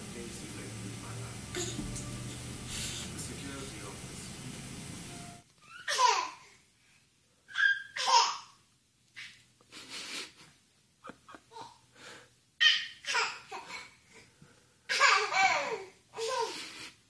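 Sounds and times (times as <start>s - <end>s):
baby laughing: 5.7s - 6.4s, 7.5s - 8.5s, 14.9s - 16.8s.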